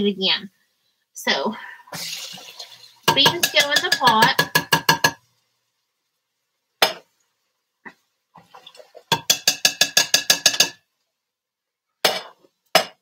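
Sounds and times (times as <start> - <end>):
metal kitchenware clinking: 3.0 - 5.2, 9.0 - 10.8.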